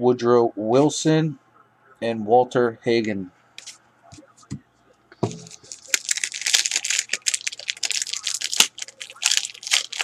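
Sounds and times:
wrapper crinkling as torn open: 5.5 - 10.0.

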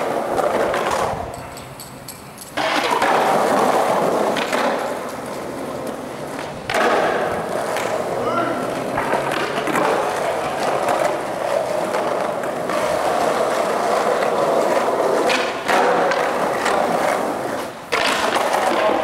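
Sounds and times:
skateboard clacks: 0.0 - 19.0
skateboard wheels rolling on concrete: 0.0 - 19.0.

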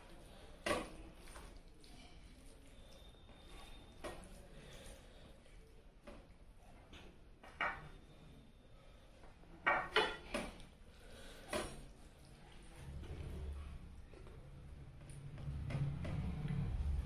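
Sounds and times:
dishes clinking: 7.5 - 8.0, 9.6 - 10.6.

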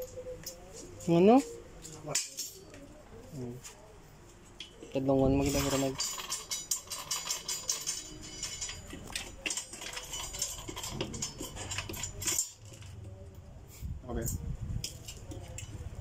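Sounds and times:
metal tubing clicking and clinking: 5.4 - 12.9.

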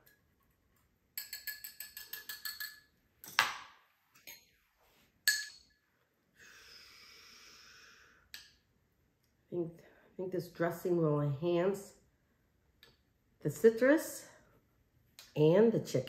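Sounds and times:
utensil clinks on ceramic: 1.2 - 2.9.

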